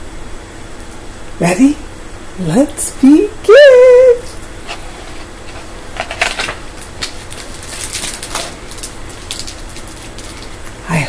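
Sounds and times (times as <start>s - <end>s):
book pages rustling: 4.6s - 10.6s.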